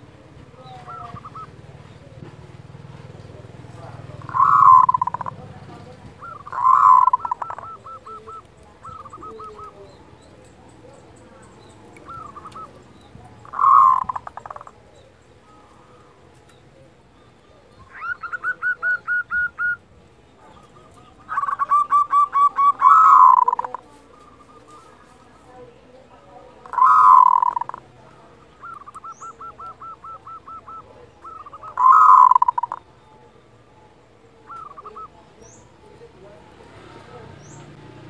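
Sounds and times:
dove rolling coos: 0:00.0 - 0:10.2, 0:11.6 - 0:16.3, 0:17.8 - 0:25.0, 0:26.4 - 0:33.0, 0:34.3 - 0:35.4.

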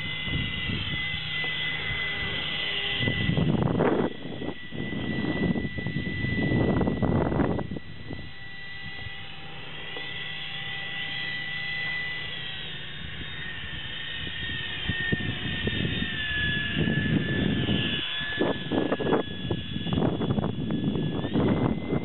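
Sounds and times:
electric ducted fan whining: 0:00.0 - 0:22.0
gusty low rumble: 0:02.9 - 0:08.3, 0:14.2 - 0:22.0.

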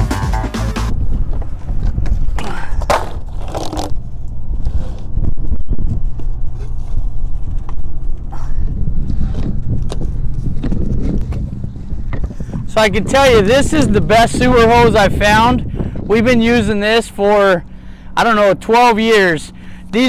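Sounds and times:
wind rumble on microphone: 0:00.8 - 0:20.0
plastic hose scraping and clicking: 0:02.4 - 0:04.0.

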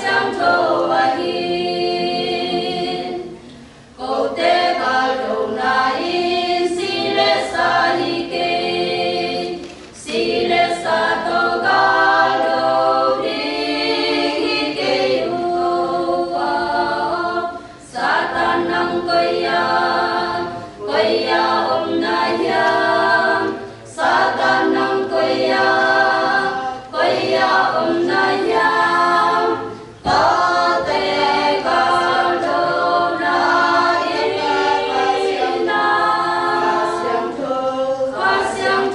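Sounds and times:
women's choir singing a cappella: 0:00.0 - 0:38.9.

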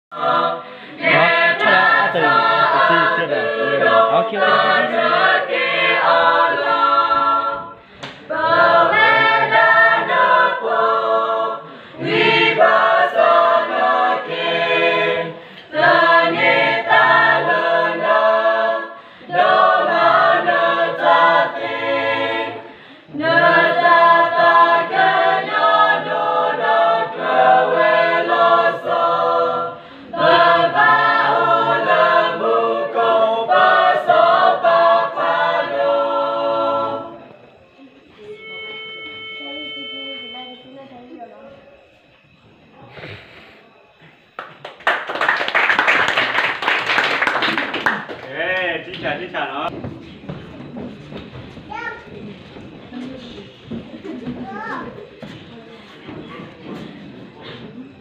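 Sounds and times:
youth choir singing unaccompanied: 0:00.1 - 0:44.4.

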